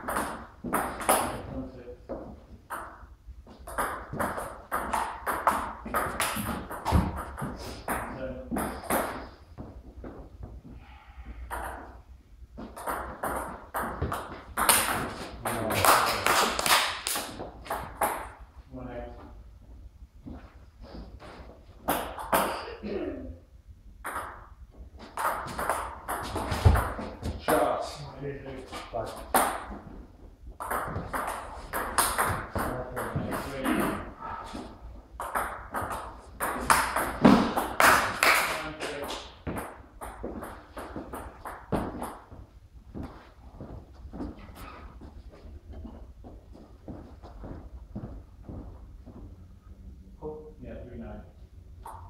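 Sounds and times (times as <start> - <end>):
table tennis ball bouncing: 0.0 - 1.4, 2.1 - 9.2, 11.5 - 12.0, 12.6 - 18.4, 21.8 - 22.6, 24.0 - 27.6, 30.5 - 34.1, 35.2 - 38.6, 39.4 - 42.4, 51.8 - 52.0
footsteps on wooden floor: 42.3 - 49.4.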